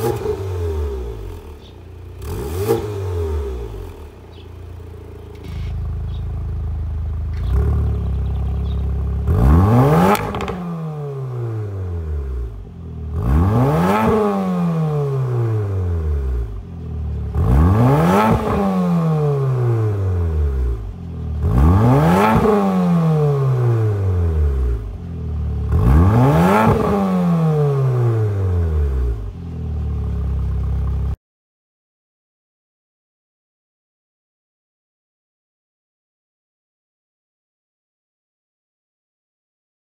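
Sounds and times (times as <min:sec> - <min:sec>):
car engine idling and revving: 0:00.0 - 0:31.2.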